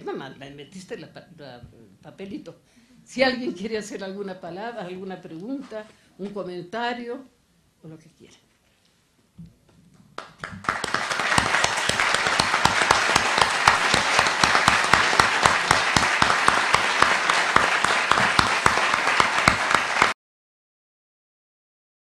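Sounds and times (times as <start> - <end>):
audience applauding: 10.2 - 20.2.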